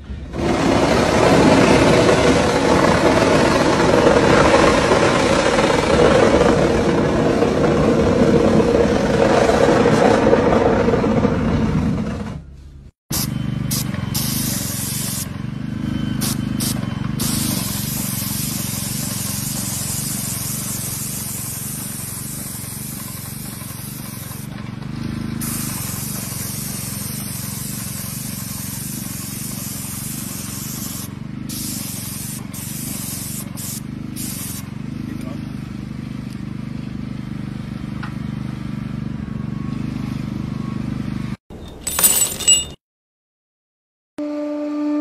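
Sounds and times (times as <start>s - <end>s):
paint spray gun hissing: 13.1s - 15.4s, 16.2s - 24.6s, 25.3s - 34.8s.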